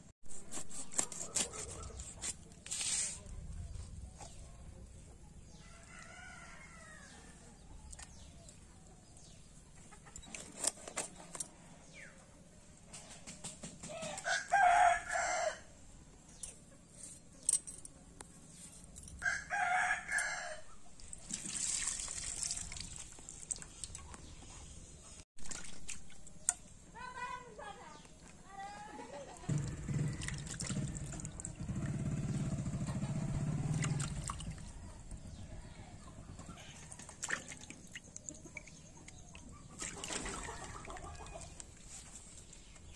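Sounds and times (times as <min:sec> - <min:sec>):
fish being cleaned on a blade: 0:00.3 - 0:03.3
rooster crowing: 0:05.6 - 0:07.4, 0:14.2 - 0:15.7, 0:19.2 - 0:20.7.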